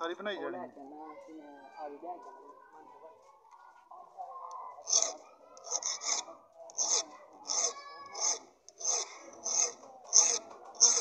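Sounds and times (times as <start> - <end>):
hand file rasping on metal: 4.8 - 11.0.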